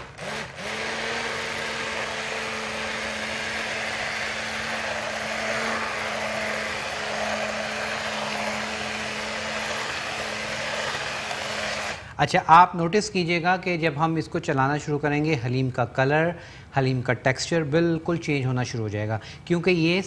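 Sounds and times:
hand blender motor hum: 0.0 - 12.1.

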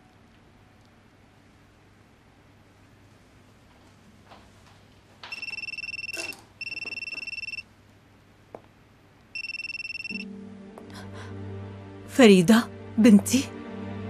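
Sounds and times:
mobile phone ringtone: 5.3 - 7.6, 9.4 - 10.3.

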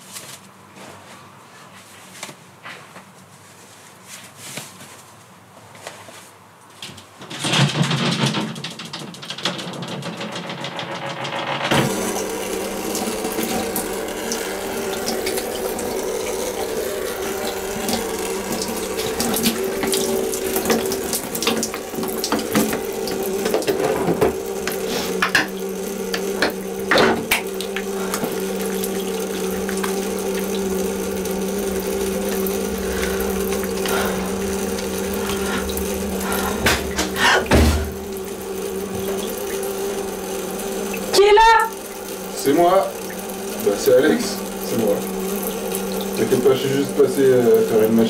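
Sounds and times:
splashes and knocks: 7.2 - 12.2, 19.0 - 30.4, 35.2 - 38.1
shower water spraying: 8.7 - 48.0
low steady hum: 10.1 - 48.0.

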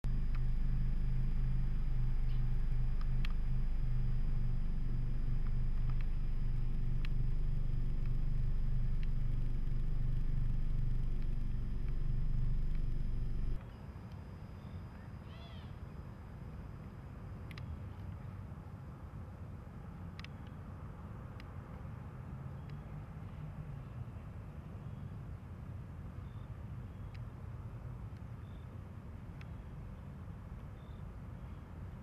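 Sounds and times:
low mechanical rumble: 0.0 - 25.0
faint ticks: 0.1 - 14.3, 29.4 - 29.6.

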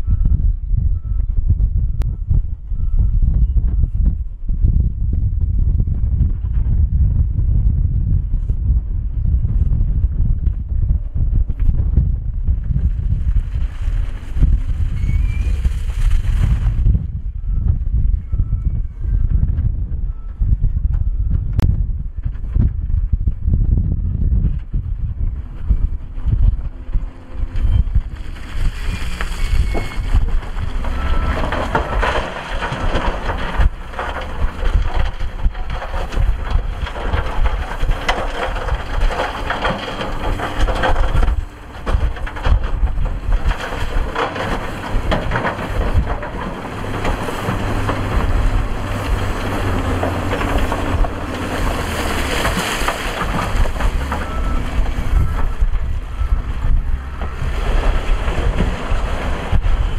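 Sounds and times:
rocks clattering and rumbling: 0.0 - 59.9
wind buffeting microphone: 0.0 - 59.9
truck engine: 9.4 - 17.6, 25.0 - 59.9.

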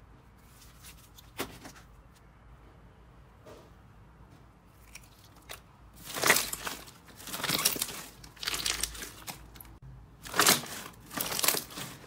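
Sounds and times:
slime squishing and crackling: 4.8 - 12.0.

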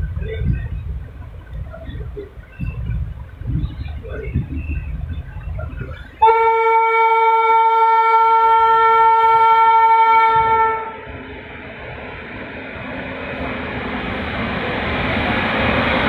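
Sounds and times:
rushing noise: 0.0 - 16.0
train rumble: 0.0 - 16.0
locomotive horn blast: 6.2 - 11.0.

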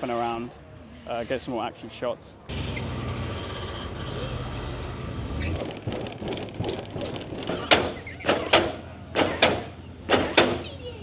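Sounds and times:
sharp knocks: 5.6 - 10.6.

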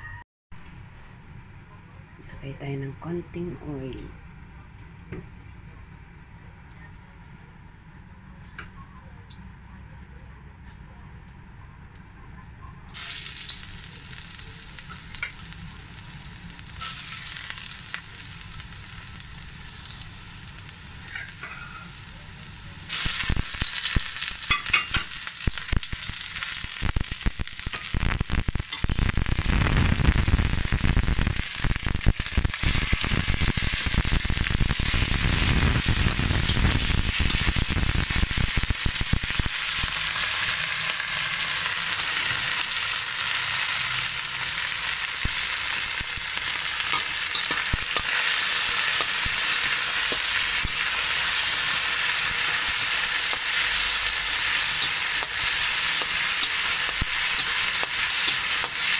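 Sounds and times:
oil sizzling in a wok: 12.9 - 58.9
onion and garlic sizzling: 12.9 - 58.9.

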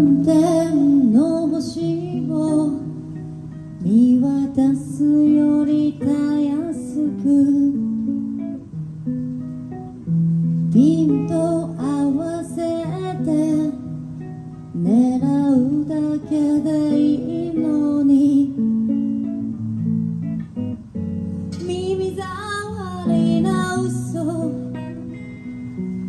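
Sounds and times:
woman singing into a microphone: 0.0 - 8.6, 10.6 - 14.1, 14.7 - 19.1, 21.5 - 25.2
guitar accompaniment: 0.0 - 26.0.

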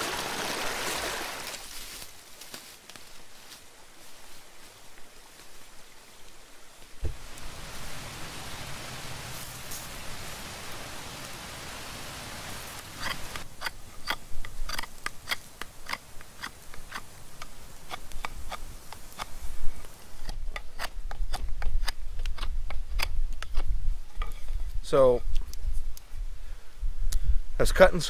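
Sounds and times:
running water hiss: 5.1 - 14.0.

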